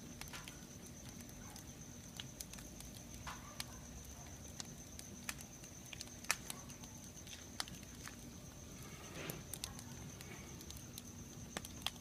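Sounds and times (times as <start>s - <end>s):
firewood crackling and popping: 0.0s - 12.0s
rush of flame: 7.8s - 12.0s.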